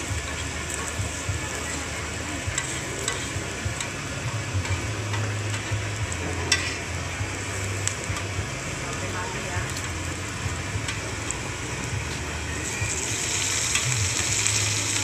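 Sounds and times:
meat sizzling on a griddle: 0.0s - 15.0s
metal tongs clicking on hot plate: 2.6s - 5.7s, 6.4s - 6.9s, 13.4s - 14.7s.

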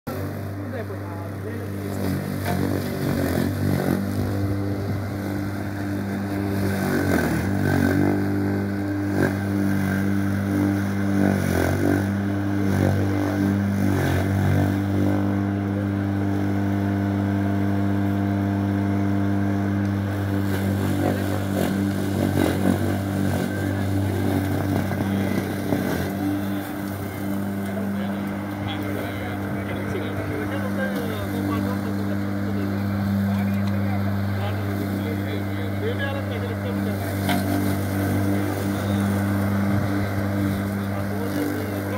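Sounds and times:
lawn mower engine running: 0.0s - 41.9s.

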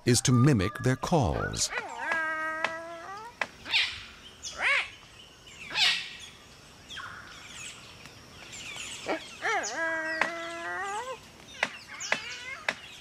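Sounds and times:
faint bird chirps: 0.0s - 7.9s.

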